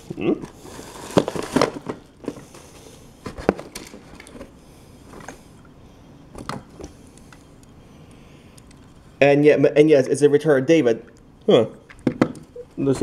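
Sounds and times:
plastic wrapping crinkling: 0:00.5 - 0:04.5.

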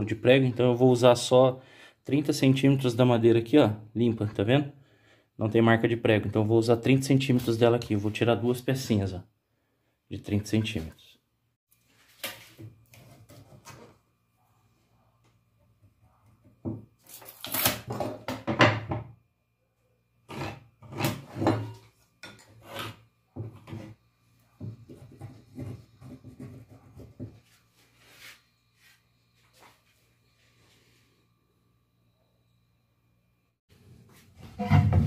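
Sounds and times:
pencil scratching on wood: 0:24.8 - 0:27.3.

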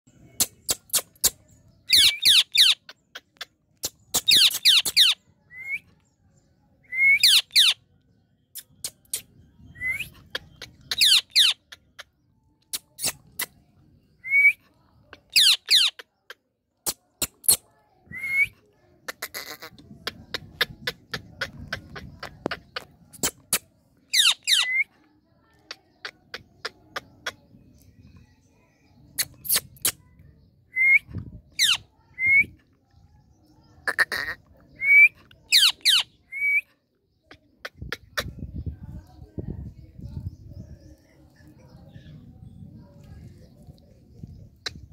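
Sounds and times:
parakeet shrill calls: 0:01.9 - 0:02.8, 0:07.2 - 0:07.8, 0:10.9 - 0:11.6, 0:24.1 - 0:24.8, 0:35.5 - 0:36.1.

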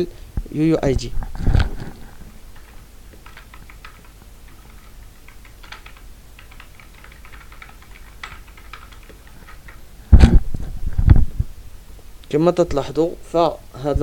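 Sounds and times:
keyboard typing: 0:02.5 - 0:10.4.

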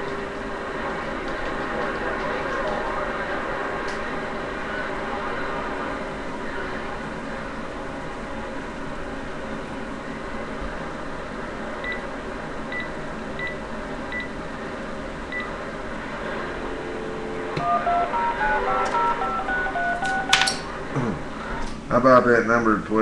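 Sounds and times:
electronic tones hopping pitches: 0:16.9 - 0:20.6.

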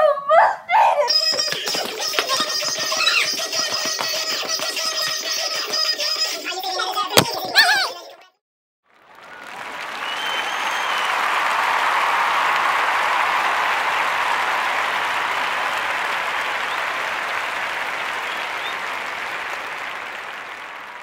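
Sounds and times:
audience applauding: 0:01.3 - 0:05.7, 0:08.9 - 0:21.0.

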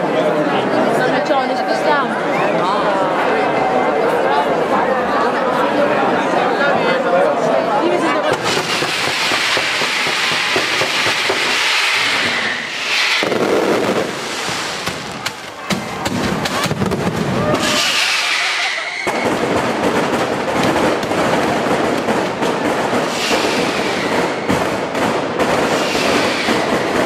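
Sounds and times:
firecracker crackling and bangs: 0:08.2 - 0:27.0
firework whistle gliding down: 0:09.0 - 0:14.8, 0:17.4 - 0:19.4, 0:23.1 - 0:24.5, 0:25.8 - 0:26.9.

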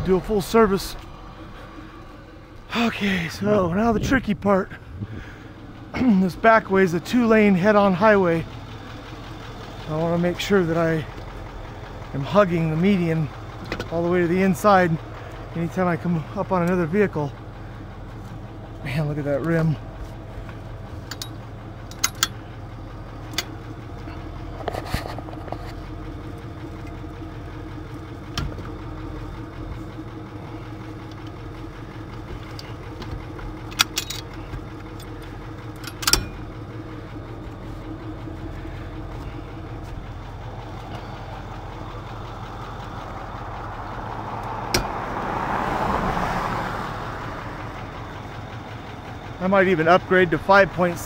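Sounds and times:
truck engine idling: 0:00.0 - 0:51.0
metal clanks: 0:20.0 - 0:22.6, 0:31.0 - 0:41.3.

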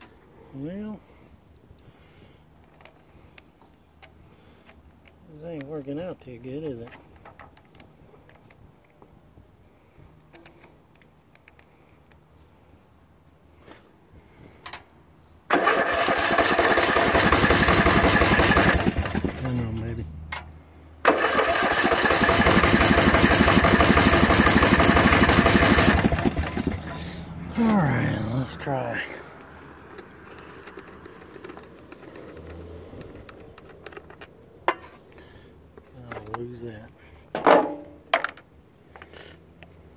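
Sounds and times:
faint clicks and handling noises: 0:02.5 - 0:09.2, 0:10.1 - 0:12.5, 0:29.4 - 0:37.0
electric starter cranking engine: 0:15.5 - 0:19.5, 0:21.0 - 0:27.2.

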